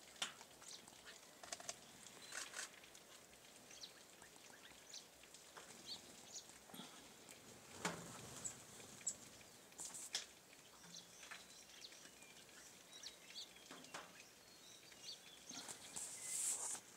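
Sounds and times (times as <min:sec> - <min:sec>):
outdoor background noise: 0:00.0 - 0:16.9
faint bird chirps: 0:10.6 - 0:16.7.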